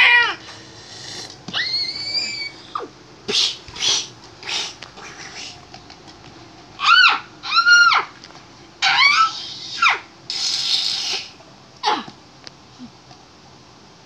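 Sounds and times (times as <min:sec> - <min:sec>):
high meow-like wailing cries: 0:00.0 - 0:00.4, 0:01.5 - 0:02.9, 0:06.8 - 0:08.1, 0:08.8 - 0:10.1.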